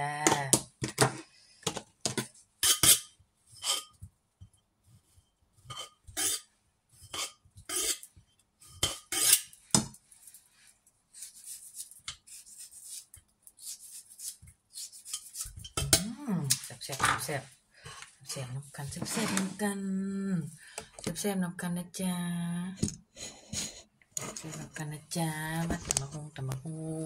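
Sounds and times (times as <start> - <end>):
scraping and tapping: 15.0 - 19.6.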